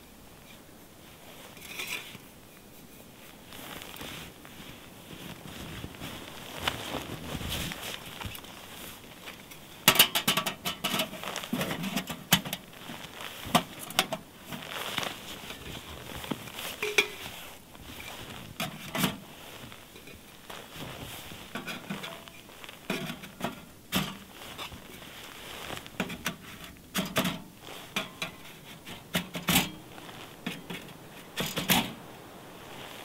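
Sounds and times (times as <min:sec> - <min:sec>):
metal clinks and scrapes: 0:01.5 - 0:02.2, 0:16.6 - 0:17.4
metal stovepipe clattering: 0:09.8 - 0:12.6, 0:16.8 - 0:17.2.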